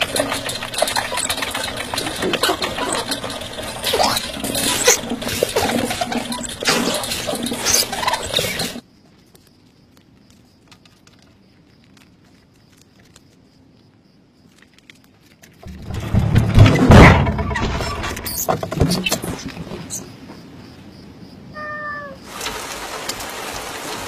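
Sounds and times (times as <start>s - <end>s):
hamster wheel spinning and rattling: 0.0s - 8.8s, 15.6s - 20.0s.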